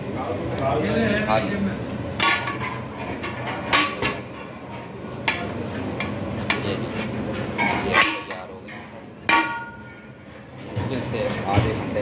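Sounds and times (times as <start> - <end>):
metal ladle clinking on pot: 9.3 - 10.1.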